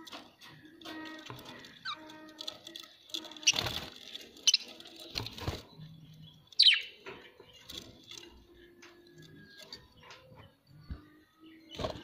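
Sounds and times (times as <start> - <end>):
budgerigars chirping: 6.6 - 7.0.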